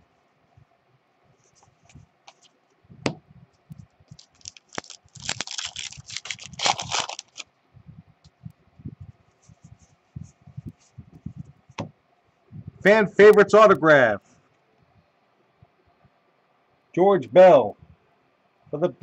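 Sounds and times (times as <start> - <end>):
cards being handled: 1.4 - 2.6, 4.1 - 7.4
foil wrapper tearing and crinkling: 4.1 - 7.5.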